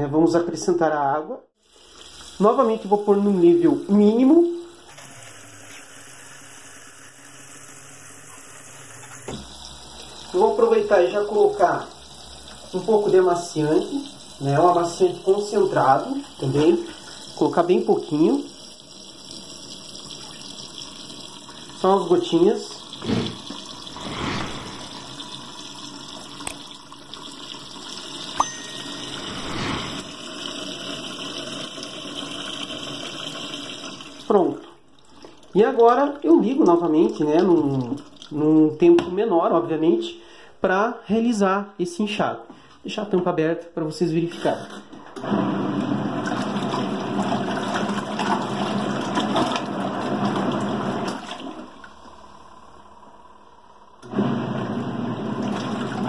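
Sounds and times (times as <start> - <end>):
tap water pouring and splashing: 1.6 - 6.2, 8.2 - 28.4, 29.7 - 39.1, 46.2 - 52.1, 55.4 - 56.0
washing machine motor hum: 1.6 - 34.7, 44.5 - 56.0.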